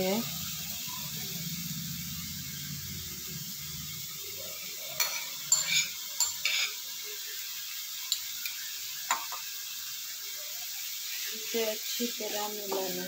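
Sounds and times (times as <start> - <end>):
masala sizzling in a frying pan: 0.0 - 13.0
utensil clinking and scraping: 4.8 - 6.8.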